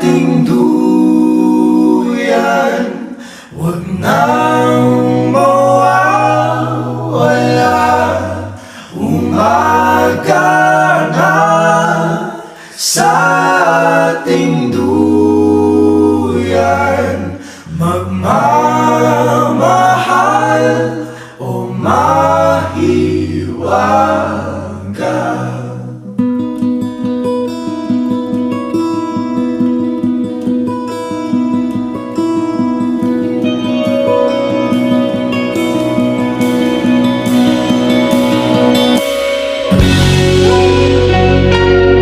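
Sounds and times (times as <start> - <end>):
voices singing: 0.0 - 26.1
low held notes: 33.4 - 42.0.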